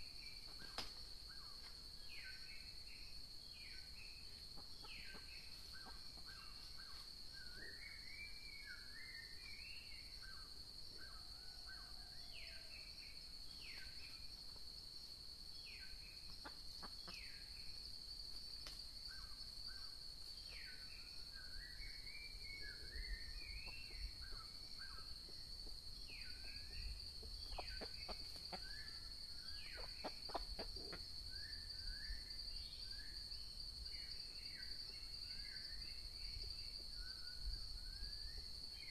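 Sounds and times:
small birds chirping: 0:18.6 - 0:38.9.

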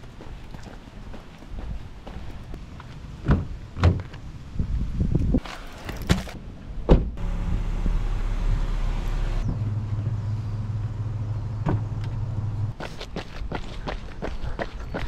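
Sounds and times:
car engine starting and running: 0:07.2 - 0:12.7.

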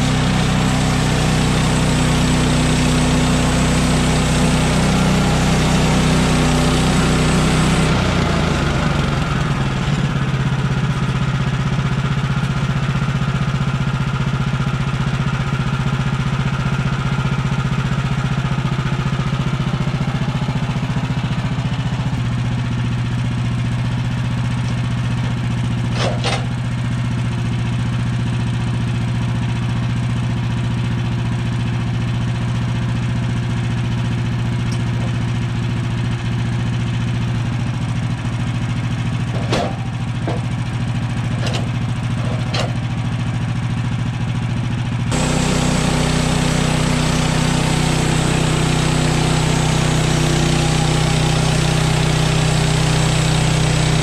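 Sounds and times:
sawmill gas engine running: 0:00.0 - 0:54.0
lumber knocking: 0:39.3 - 0:40.6.

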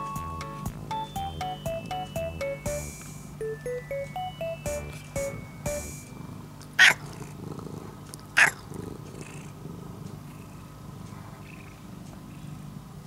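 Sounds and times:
cat purring: 0:00.5 - 0:02.2, 0:05.0 - 0:13.0.

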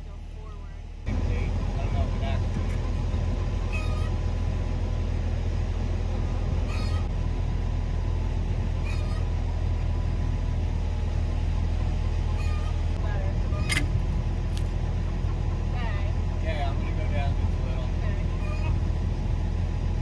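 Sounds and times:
excavator engine running: 0:00.0 - 0:20.0
short squeaks: 0:03.7 - 0:04.2, 0:06.7 - 0:07.1, 0:08.8 - 0:09.3, 0:12.3 - 0:14.0, 0:18.4 - 0:18.8.

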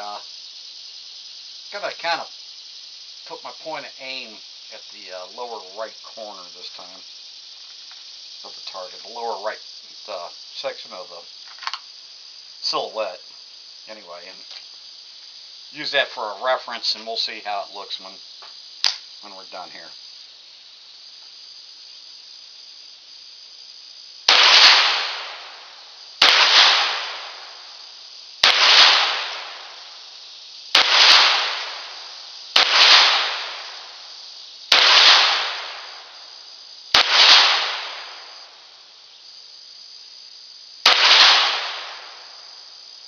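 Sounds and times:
faint insect drone: 0:00.0 - 0:43.0
pistol shots: 0:24.3 - 0:25.5, 0:26.2 - 0:27.4, 0:28.4 - 0:29.8, 0:30.8 - 0:32.0, 0:32.6 - 0:33.8, 0:34.7 - 0:35.9, 0:36.9 - 0:38.2, 0:40.8 - 0:42.1.

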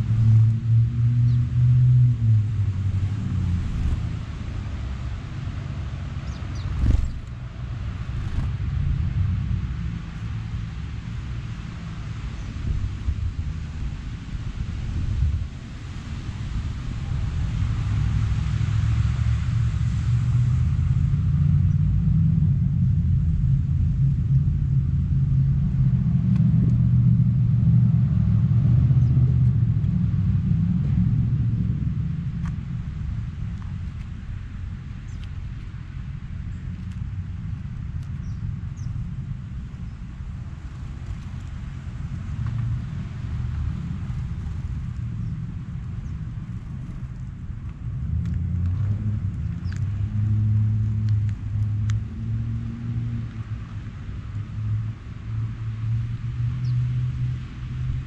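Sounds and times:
engine rumble: 0:00.0 - 0:58.0
faint bird chirps: 0:06.2 - 0:07.2.

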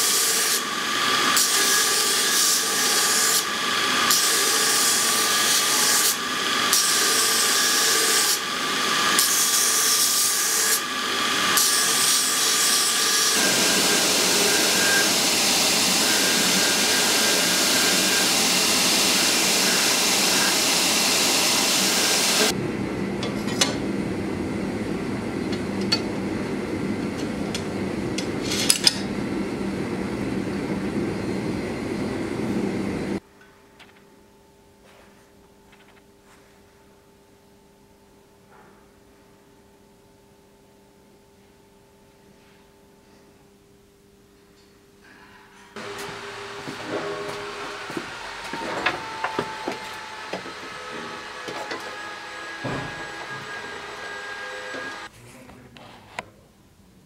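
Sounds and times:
belt grinder grinding steel: 0:00.0 - 0:22.5, 0:45.8 - 0:55.1.

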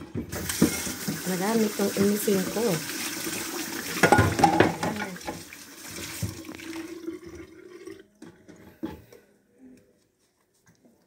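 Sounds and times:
tap water running into sink: 0:00.0 - 0:08.6
dishes clinking: 0:04.0 - 0:05.4.

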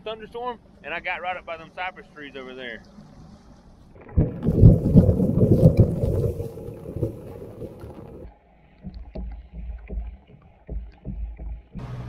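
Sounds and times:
wind buffeting microphone: 0:04.0 - 0:08.3
dull thumps: 0:04.0 - 0:11.9.

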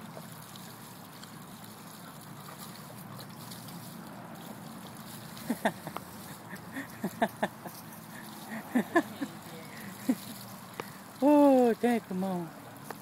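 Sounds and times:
water spraying from hose: 0:00.0 - 0:13.0.

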